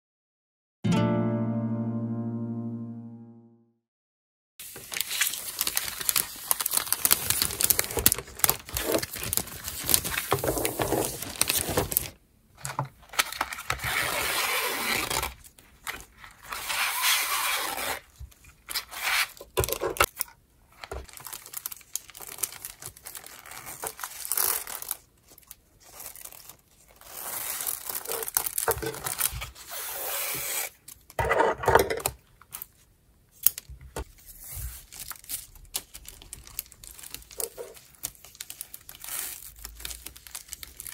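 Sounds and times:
plastic wrapping film crinkling: 0:04.6 - 0:12.2, 0:20.8 - 0:29.6, 0:33.5 - 0:40.9.

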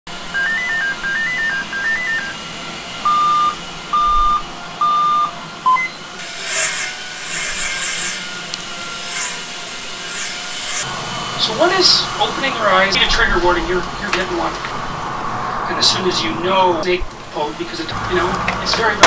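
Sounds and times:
laptop electronic beeps: 0:00.3 - 0:02.4, 0:03.0 - 0:06.0
scratchy rubbing noise: 0:06.2 - 0:10.9.

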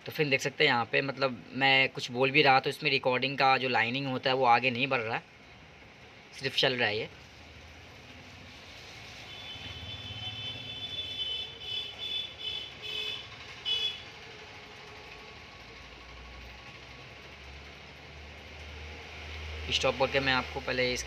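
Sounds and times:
low engine rumble: 0:09.5 - 0:19.3.

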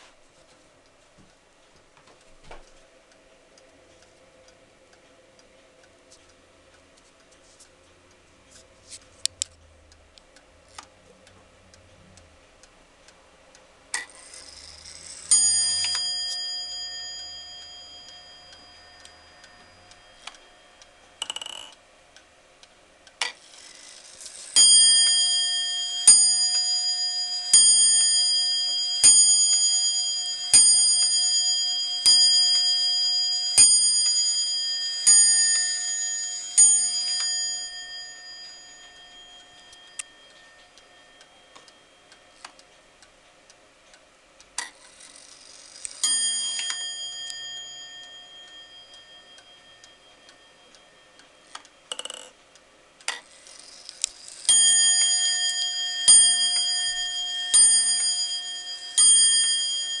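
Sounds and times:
clock ticking faintly: 0:00.2 - 1:00.0
wall clock bell striking: 0:14.3 - 0:21.2, 0:24.4 - 0:42.4, 0:46.0 - 0:51.9, 0:54.4 - 1:00.0.

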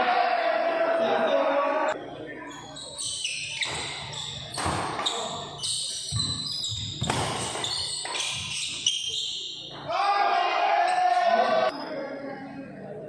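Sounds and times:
footsteps and shoe squeaks: 0:02.4 - 0:09.9
racket hitting shuttlecock: 0:04.6 - 0:05.3, 0:07.0 - 0:08.5.

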